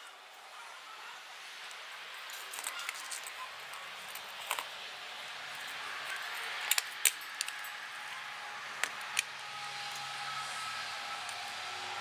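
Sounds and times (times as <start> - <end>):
metal parts clicking and clinking: 2.2 - 4.7, 5.5 - 8.1.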